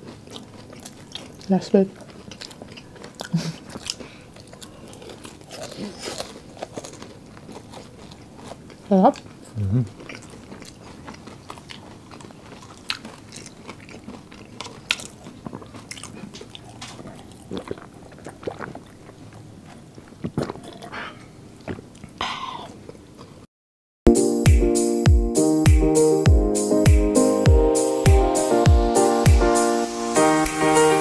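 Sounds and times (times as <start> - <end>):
people chewing and lip smacking: 0.0 - 23.5
music: 24.1 - 31.0.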